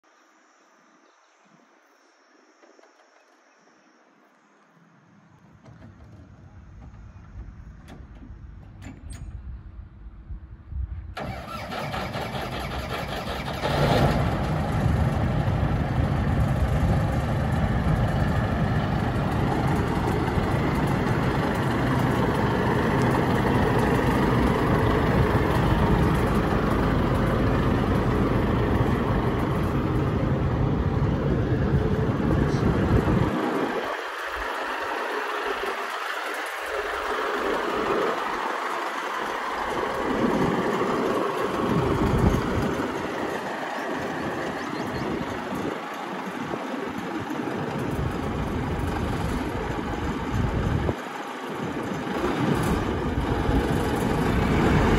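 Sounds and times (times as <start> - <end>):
diesel engine starting up: 11.1 - 54.9.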